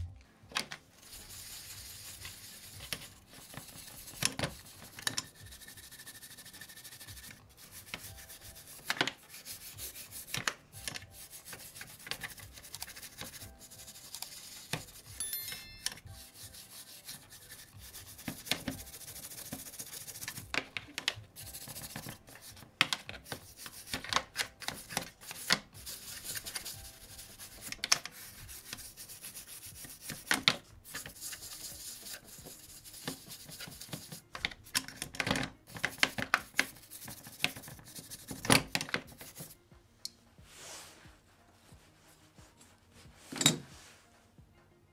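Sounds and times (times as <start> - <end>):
brush scrubbing: 1.0 - 15.2, 16.1 - 20.5, 21.3 - 34.4, 35.7 - 39.6.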